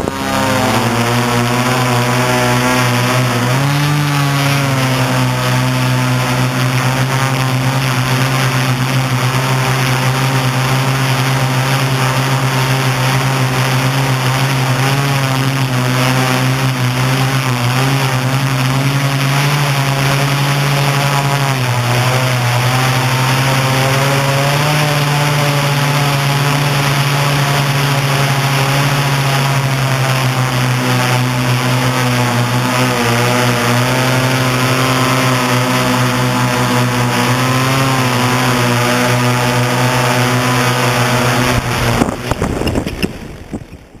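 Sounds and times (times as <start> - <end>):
drone propellers droning: 0.0 - 44.0
drone landing knocks: 41.3 - 44.0.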